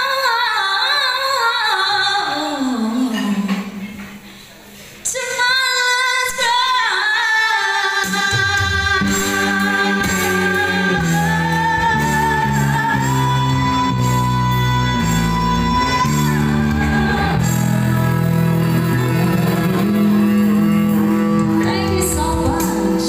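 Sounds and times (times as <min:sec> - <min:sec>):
woman singing ballad: 0:00.0 - 0:04.0, 0:05.0 - 0:23.0
electric bass: 0:09.0 - 0:23.0.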